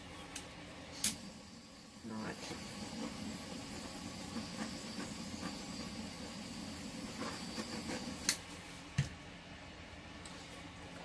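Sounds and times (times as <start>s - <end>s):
steady hiss: 0.9s - 8.9s.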